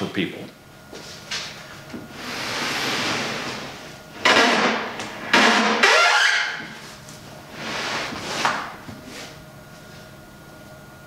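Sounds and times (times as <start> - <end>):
sheet scraping over plywood: 2.1 - 4.8, 6.6 - 9.4.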